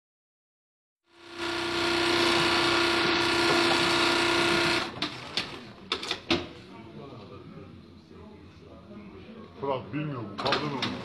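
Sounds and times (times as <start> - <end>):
sewing machines whirring: 1.1 - 6.2.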